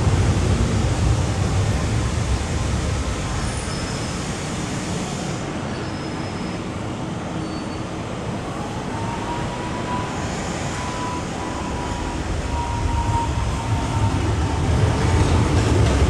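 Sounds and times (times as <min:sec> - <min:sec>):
train wheels rumbling: 0:08.4 - 0:16.0.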